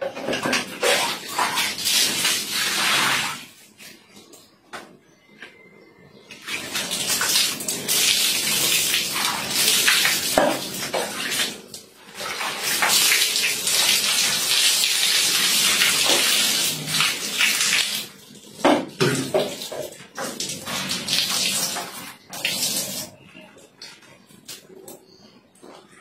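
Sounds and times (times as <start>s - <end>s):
water splashing on tiled floor: 0.2s - 3.6s, 6.4s - 23.2s.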